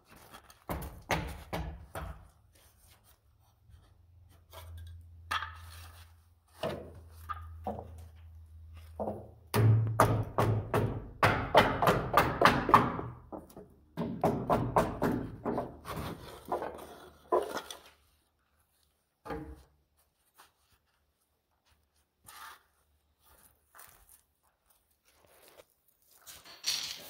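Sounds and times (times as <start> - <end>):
hammer knocking wooden wedges: 0.7 - 2.4, 8.9 - 17.6.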